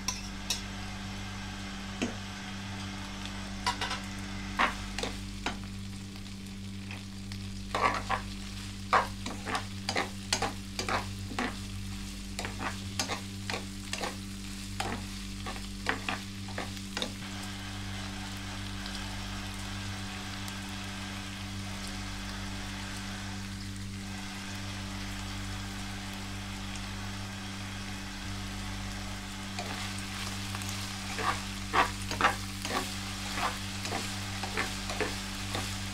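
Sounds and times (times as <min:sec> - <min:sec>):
food sizzling in pan: 0:00.0 - 0:35.9
low hum: 0:00.0 - 0:35.9
spatula scraping frying pan: 0:04.6 - 0:05.2, 0:07.7 - 0:11.7, 0:12.4 - 0:14.2, 0:14.8 - 0:17.2, 0:29.6 - 0:35.9.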